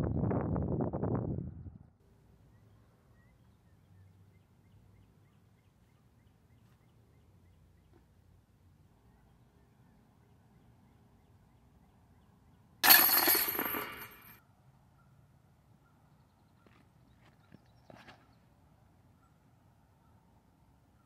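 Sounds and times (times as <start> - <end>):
metallic jangle of chains: 12.8 - 14.4.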